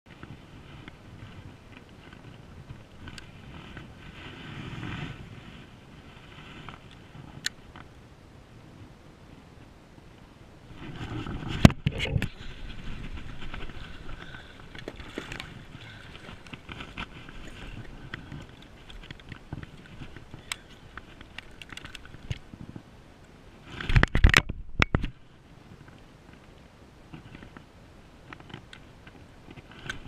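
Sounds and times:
fish splashing: 0:13.3 - 0:22.3.

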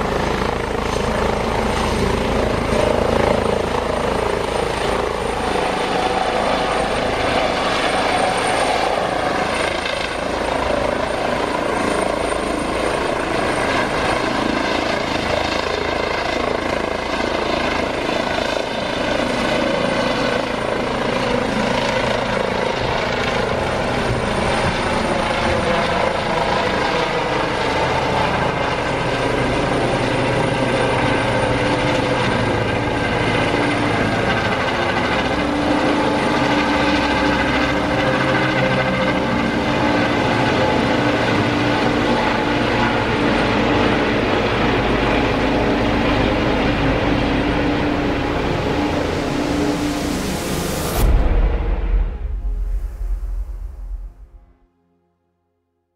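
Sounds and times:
helicopter rotor and turbine noise: 0:00.0 - 0:54.6
thin high whine: 0:32.2 - 0:54.6.

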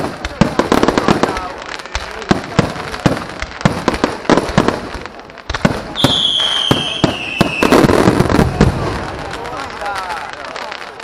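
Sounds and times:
fireworks bursting: 0:00.0 - 0:11.0
fireworks crackling: 0:00.0 - 0:11.0
high firework whistle: 0:05.9 - 0:08.0.

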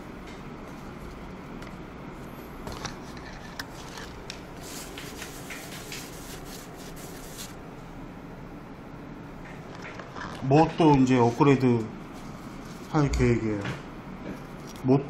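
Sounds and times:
steady background hum: 0:00.0 - 0:15.0
paper tissue rustling and rubbing: 0:03.0 - 0:07.6, 0:11.0 - 0:13.0.

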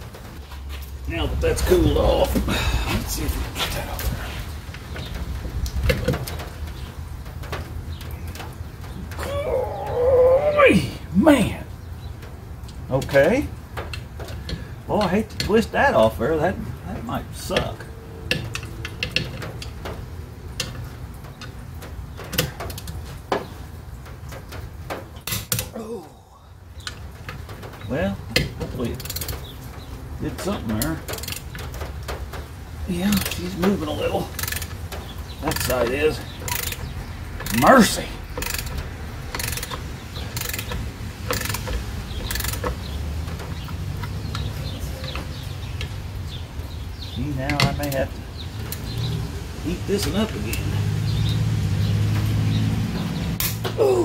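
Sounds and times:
ratchet wrench clicking: 0:34.4 - 0:34.8, 0:36.5 - 0:36.8, 0:38.4 - 0:39.8, 0:40.4 - 0:42.7.

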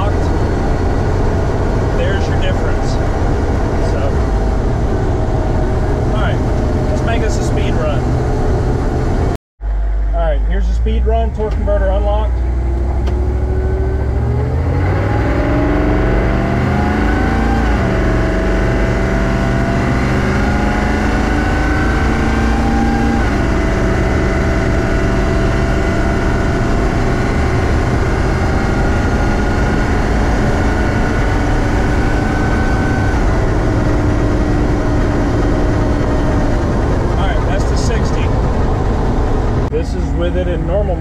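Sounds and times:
diesel engine accelerating: 0:00.0 - 0:41.0
transmission upshifting: 0:10.1 - 0:41.0.

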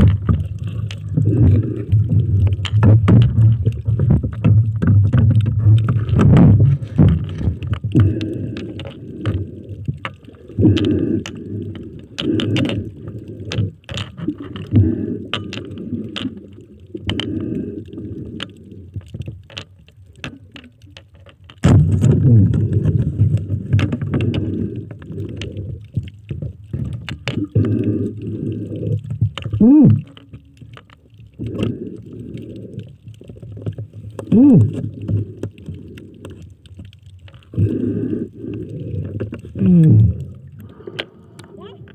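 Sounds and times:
underwater water surges: 0:00.0 - 0:20.9
underwater clicks and knocks: 0:00.0 - 0:41.9.

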